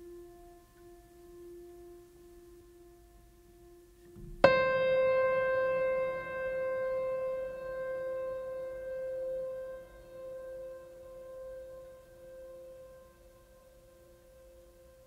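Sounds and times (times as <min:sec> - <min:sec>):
soft held tone: 0:00.0 - 0:15.0.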